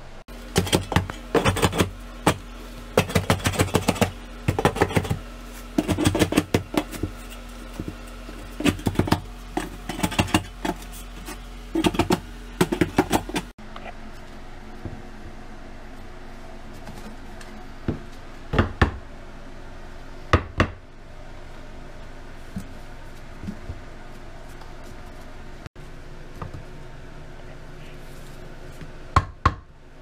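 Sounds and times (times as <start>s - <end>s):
steady low hum: 0.0s - 30.0s
hand trowel tapping and scraping: 0.5s - 13.5s.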